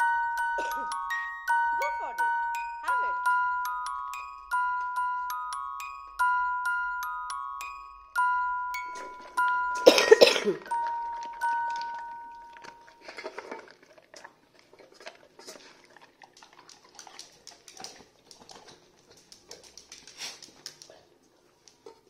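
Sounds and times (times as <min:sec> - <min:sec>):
chime-like notes: 0:00.0 - 0:13.2
dog eating from metal bowl: 0:10.6 - 0:21.0.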